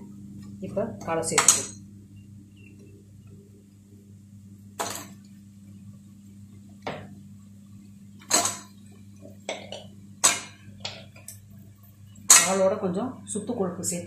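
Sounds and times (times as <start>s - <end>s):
meat pieces clattering in a pot: 8.2s - 8.7s, 9.4s - 11.4s.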